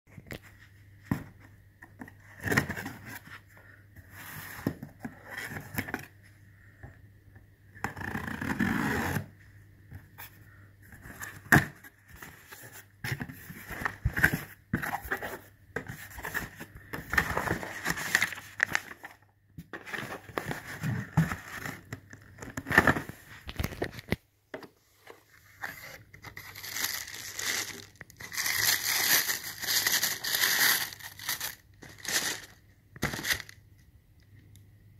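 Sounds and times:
tissue paper crinkling: 25.6s - 33.6s.

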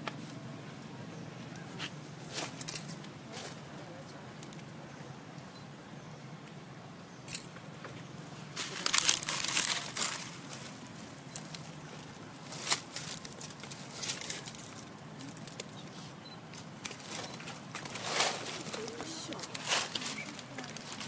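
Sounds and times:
dry leaves rustling and crackling: 8.4s - 15.9s, 16.6s - 21.0s.

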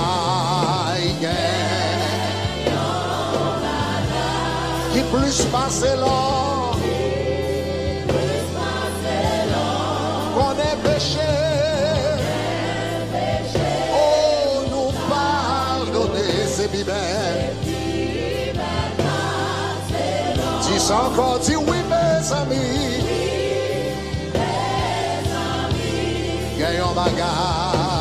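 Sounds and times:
male singer with vibrato: 0.0s - 2.2s, 4.9s - 7.0s, 10.4s - 12.4s, 13.9s - 17.4s, 20.6s - 23.1s, 26.6s - 28.0s
bass line: 0.0s - 28.0s
choir singing: 0.0s - 28.0s
keyboard: 0.0s - 28.0s.

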